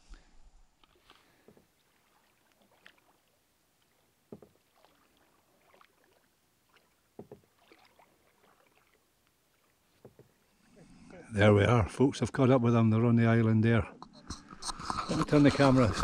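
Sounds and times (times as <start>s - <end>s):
water drips: 0.8s - 10.6s
faint canoe paddle knocks: 4.3s - 5.0s, 7.1s - 8.0s, 9.9s - 10.4s.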